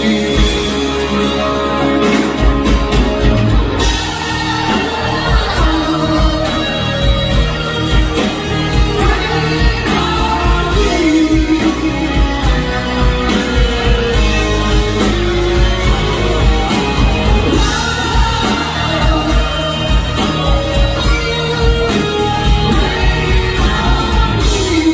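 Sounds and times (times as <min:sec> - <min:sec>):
live rock band playing: 0:00.0 - 0:24.9
person singing: 0:03.8 - 0:14.4, 0:16.4 - 0:24.9.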